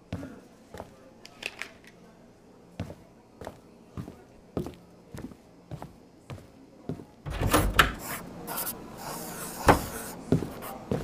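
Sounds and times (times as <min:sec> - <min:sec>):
soft footstep clicks: 0:00.0 - 0:01.3, 0:02.8 - 0:07.2, 0:09.8 - 0:11.0
clattering and hiss: 0:07.4 - 0:10.3.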